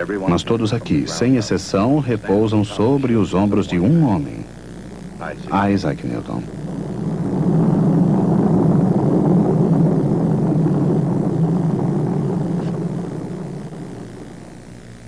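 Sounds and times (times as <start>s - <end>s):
rocket engines rumbling: 0.0s - 15.0s.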